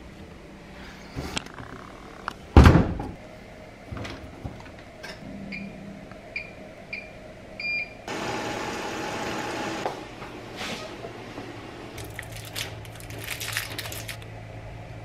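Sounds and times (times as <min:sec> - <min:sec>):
washing machine button beeps: 0:06.4 - 0:08.0.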